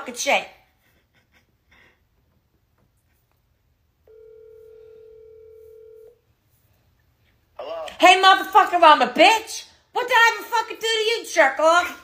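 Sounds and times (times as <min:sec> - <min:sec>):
telephone ringback tone: 0:04.1 - 0:06.2.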